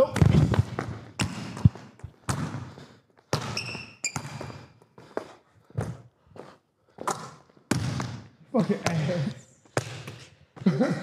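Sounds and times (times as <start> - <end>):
sneakers squeaking on court: 0.0 - 4.9
basketball bouncing on indoor court: 0.0 - 5.0, 7.0 - 11.0.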